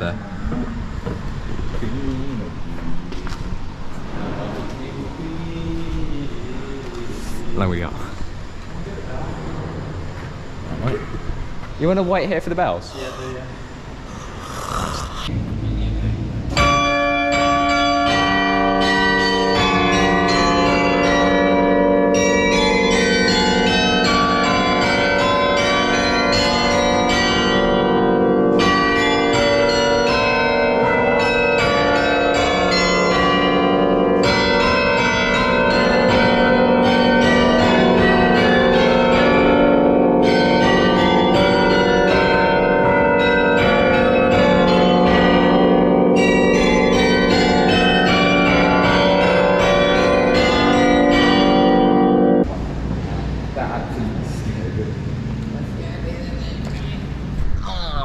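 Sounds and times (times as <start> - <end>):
carillon bells pealing: 16.5 - 52.5.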